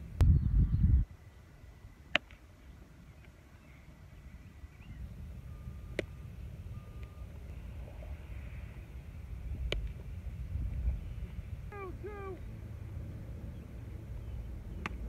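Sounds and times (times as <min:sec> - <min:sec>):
wind rumble on microphone: 0:00.0 - 0:02.0, 0:02.7 - 0:15.0
short beeps: 0:05.4 - 0:07.3
sharp crack: 0:14.8 - 0:15.0.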